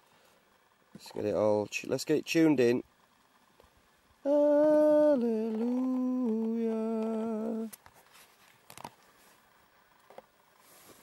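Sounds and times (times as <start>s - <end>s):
man humming long notes: 4.2s - 7.8s.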